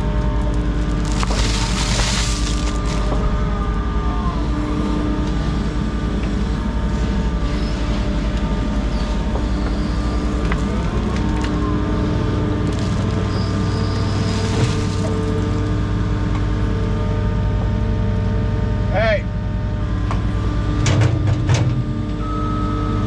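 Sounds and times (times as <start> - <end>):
gliding hydraulic whines: 0.0 - 17.2
diesel engine running: 0.0 - 23.0.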